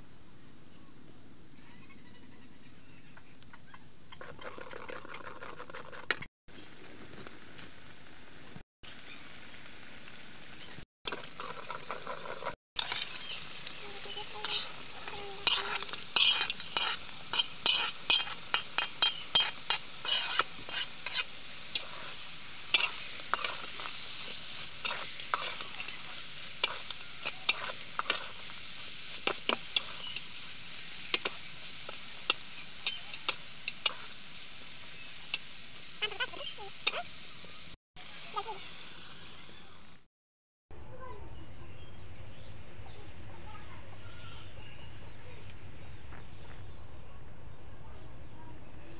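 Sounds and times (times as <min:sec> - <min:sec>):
oil sizzling in a pan: 0:08.2 - 0:40.1.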